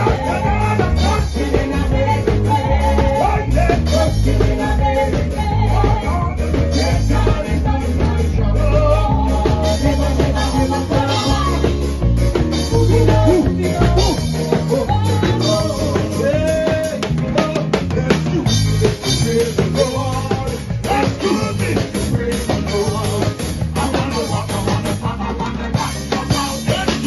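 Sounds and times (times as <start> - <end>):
drum kit: 0.0 - 27.0
electric bass: 0.0 - 27.0
keyboard: 0.0 - 27.0
voices singing: 0.0 - 27.0.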